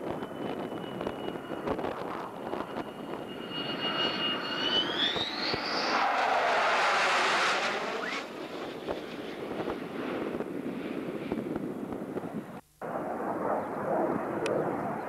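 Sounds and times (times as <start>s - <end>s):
wind buffeting microphone: 0.0s - 3.4s, 8.3s - 15.0s
jet engines whining and roaring: 0.0s - 15.0s.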